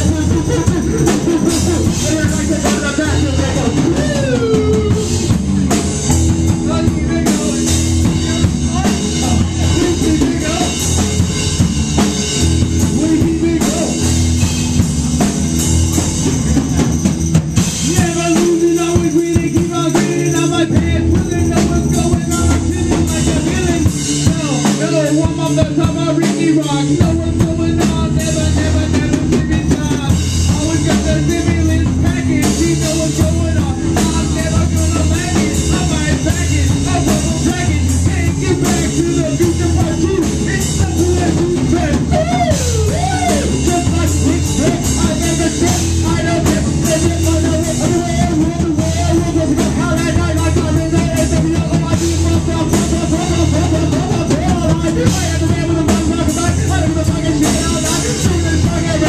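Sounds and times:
person singing: 0.0s - 11.4s, 12.0s - 14.6s, 17.6s - 59.0s
bass guitar line: 0.0s - 59.0s
drum kit beating: 0.0s - 59.0s.

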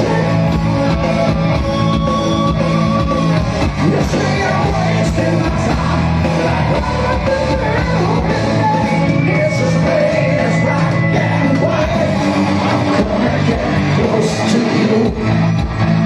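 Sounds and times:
live rock band playing: 0.0s - 16.0s
man singing into microphone: 3.7s - 15.4s.

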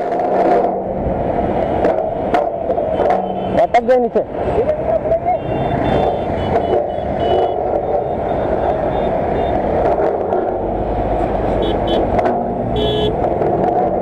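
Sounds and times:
vehicle engines rumbling in traffic: 0.0s - 14.0s.

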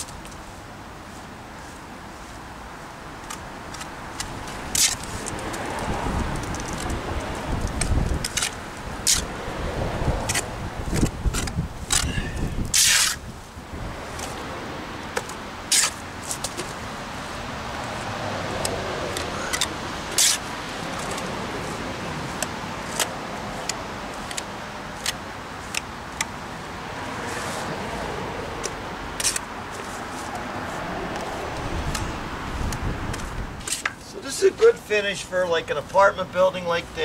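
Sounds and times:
steady background noise: 0.0s - 37.0s
trowel scraping stucco: 7.7s - 9.3s, 10.2s - 13.3s, 15.7s - 16.5s, 18.6s - 24.4s.

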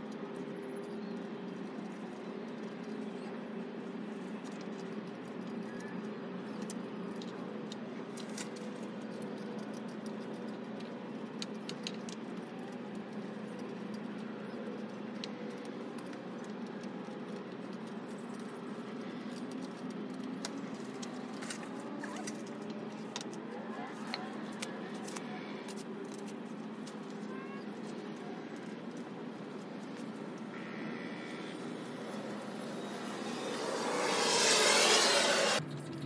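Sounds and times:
steady low hum: 27.8s - 35.9s.

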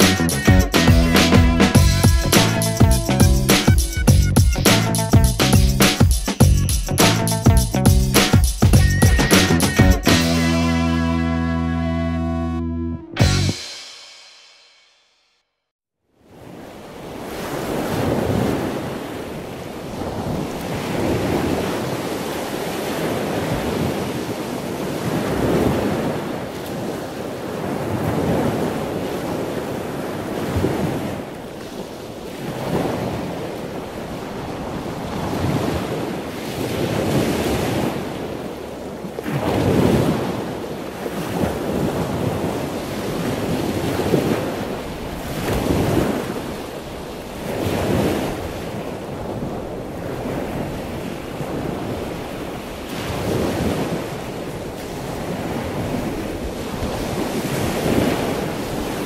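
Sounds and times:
wind: 16.0s - 59.0s
ocean waves breaking: 16.2s - 59.0s.

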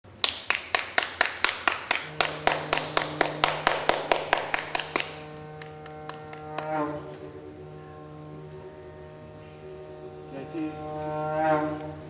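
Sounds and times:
rhythmic hand clapping: 0.0s - 8.6s
low sustained tone: 0.7s - 12.0s.

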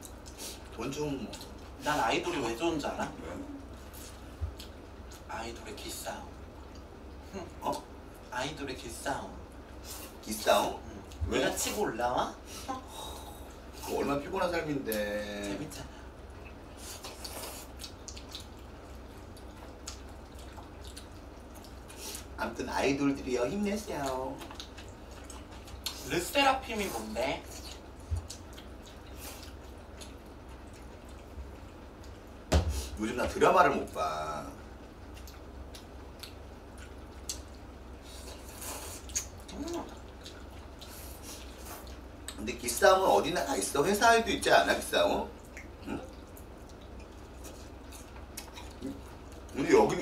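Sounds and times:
people slurping and chewing noodles: 0.0s - 8.3s, 8.9s - 33.1s, 33.7s - 44.0s, 44.6s - 50.0s
faint low hum: 0.0s - 50.0s
wet mouth smacks and chewing: 17.0s - 22.3s, 35.1s - 37.7s, 39.0s - 42.4s, 45.4s - 49.5s.

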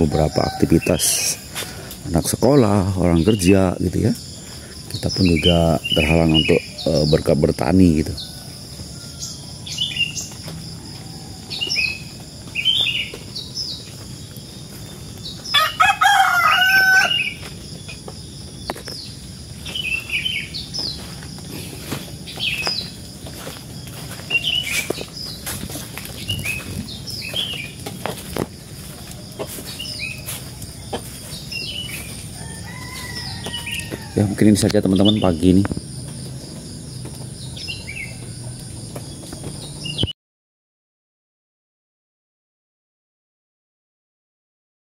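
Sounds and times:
rooster crowing: 0.0s - 1.9s, 7.9s - 12.2s, 15.4s - 17.4s, 23.4s - 25.0s, 28.8s - 34.6s, 37.6s - 38.9s
bird chirps: 0.0s - 40.1s
insect trill: 0.0s - 40.1s.

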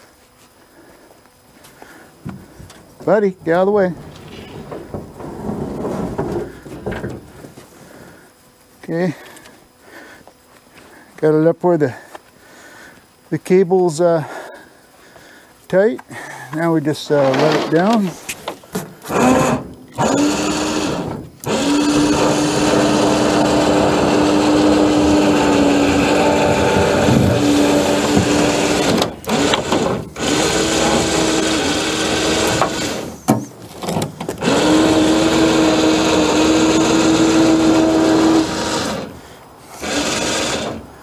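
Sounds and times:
electric winch motor running: 1.8s - 8.4s, 17.0s - 18.2s, 19.0s - 41.0s.

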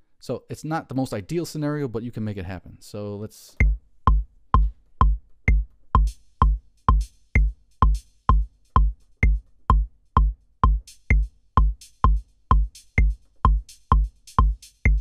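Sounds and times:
high percussion hits: 3.6s - 15.0s
kick drum beat: 3.6s - 15.0s
metronome click: 3.6s - 15.0s.

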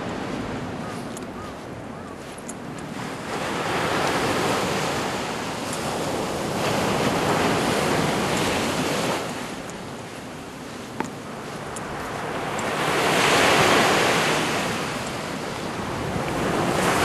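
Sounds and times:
small waves breaking on beach: 0.0s - 17.0s.

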